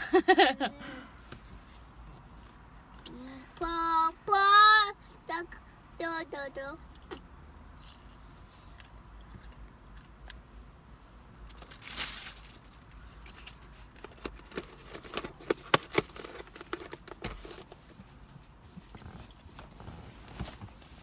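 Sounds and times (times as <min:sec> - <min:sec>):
plastic container rustle: 0:11.6 - 0:17.8.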